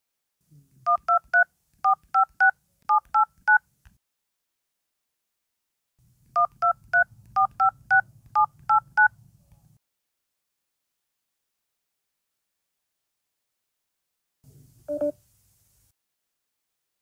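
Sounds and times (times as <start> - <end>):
phone keypad dual-tone beeps: 14.9 - 15.1.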